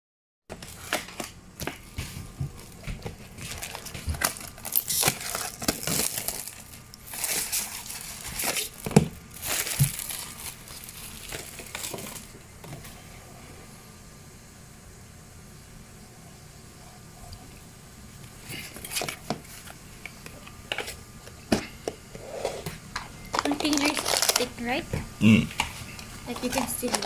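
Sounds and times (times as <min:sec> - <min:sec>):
plastic wrapping crinkling and tearing: 0:02.5 - 0:12.4, 0:23.3 - 0:24.8, 0:25.7 - 0:27.0.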